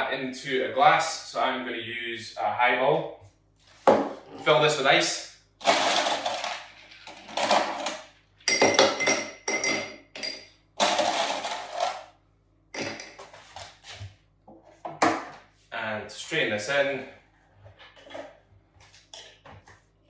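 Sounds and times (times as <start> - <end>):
ice cubes clinking in glass: 5.7 - 12.0.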